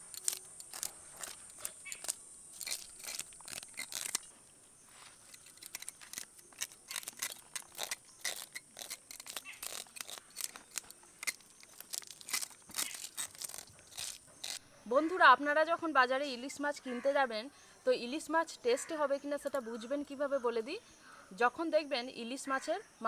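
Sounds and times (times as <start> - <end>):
blade scraping fish scales: 0.0 - 4.3, 5.2 - 14.6.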